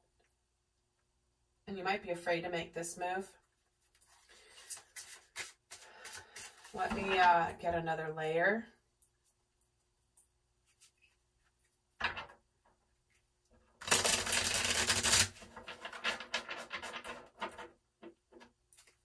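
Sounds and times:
cards riffle-shuffled: 0:04.0 - 0:06.8, 0:13.8 - 0:16.7.

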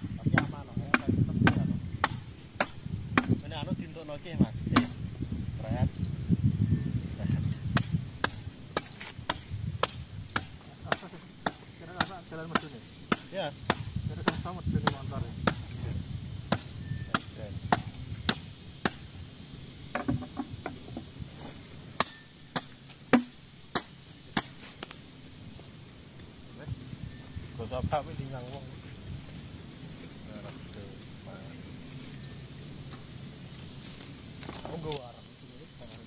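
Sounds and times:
wood chopping strikes: 0:00.3 - 0:03.4, 0:04.7 - 0:05.0, 0:07.7 - 0:15.8, 0:16.5 - 0:19.1, 0:19.9 - 0:20.8, 0:22.0 - 0:25.0.

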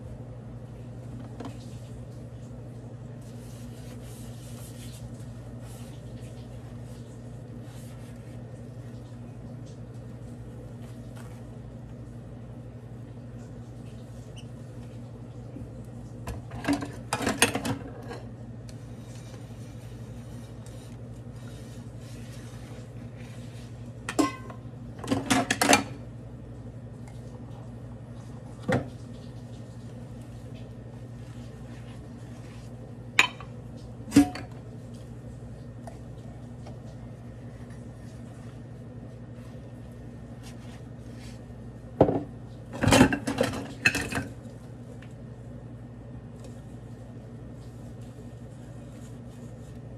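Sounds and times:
steady low hum: 0:00.0 - 0:49.9
dishes clinking in a sink: 0:24.1 - 0:26.0, 0:33.2 - 0:34.6, 0:42.0 - 0:44.4.

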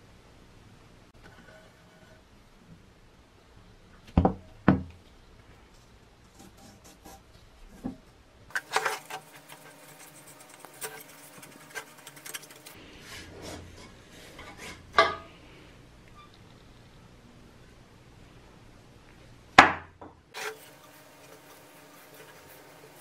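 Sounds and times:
metal parts scraping and rubbing: 0:08.5 - 0:14.9, 0:20.4 - 0:23.0.

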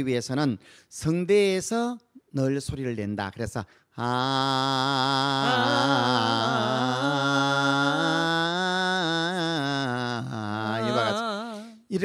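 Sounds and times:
man singing a held note: 0:09.4 - 0:11.9.

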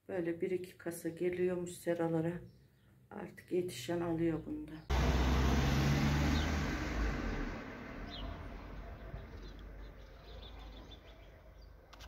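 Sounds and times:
low rumbling: 0:04.9 - 0:10.2
faint bird chirps: 0:08.0 - 0:11.9.

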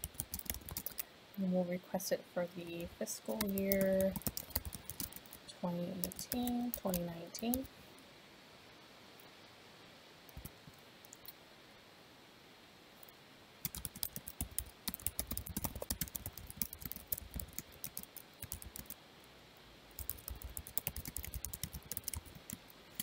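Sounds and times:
typing on computer keyboard: 0:00.0 - 0:01.0, 0:03.3 - 0:05.4, 0:06.0 - 0:07.7, 0:13.6 - 0:19.0, 0:20.0 - 0:23.0.

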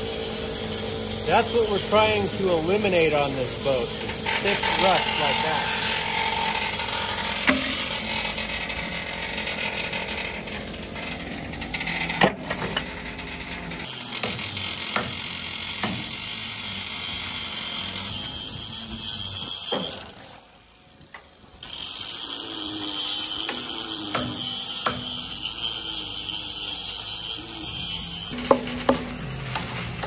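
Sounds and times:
metallic scraping rattle: 0:00.0 - 0:13.8
sharp knocks on metal: 0:28.4 - 0:29.7.

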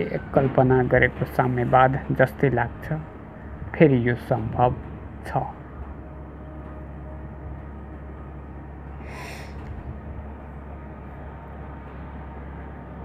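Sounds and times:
low background hum: 0:00.0 - 0:13.0
sharp breath through nose: 0:09.0 - 0:09.6.

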